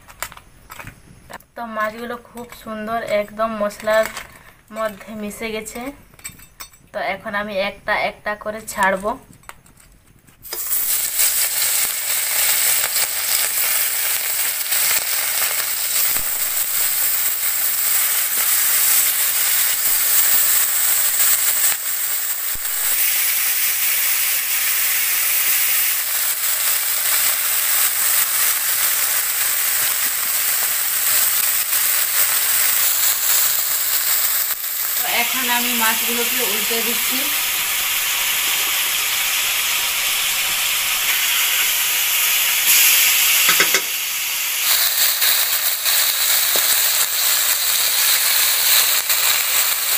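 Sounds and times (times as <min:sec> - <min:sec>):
fish sizzling in hot oil: 0:10.4 - 0:49.9.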